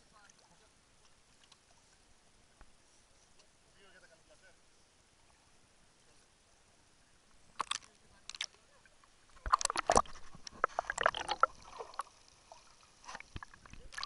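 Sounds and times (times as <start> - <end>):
water splashing and gurgling: 7.5 - 14.0.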